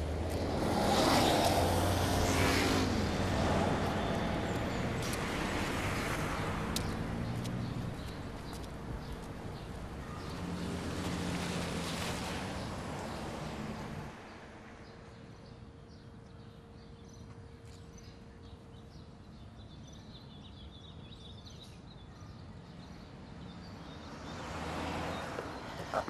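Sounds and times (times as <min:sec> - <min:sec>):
passing traffic: 0:00.0 - 0:15.3, 0:23.1 - 0:26.0
small birds chirping: 0:00.3 - 0:12.0.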